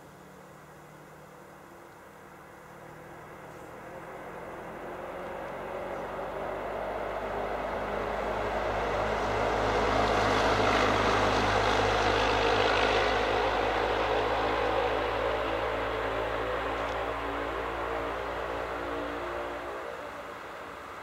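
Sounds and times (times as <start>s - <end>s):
diesel locomotive engine drone: 0.0s - 21.0s
train rumbling: 4.7s - 21.0s.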